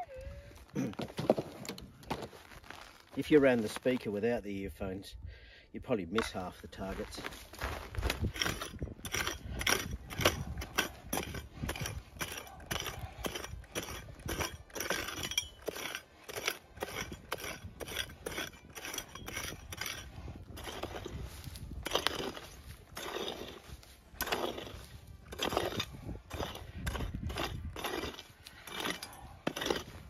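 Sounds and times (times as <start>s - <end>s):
dirt and stones scraping: 0.0s - 5.0s, 5.8s - 30.0s
pick chopping into stony soil: 6.1s - 30.0s.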